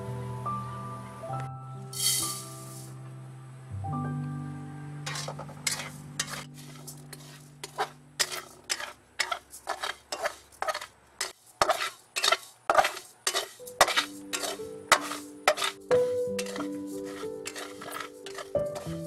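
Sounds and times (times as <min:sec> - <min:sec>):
spatula stirring rice in metal pan: 0:05.1 - 0:19.0.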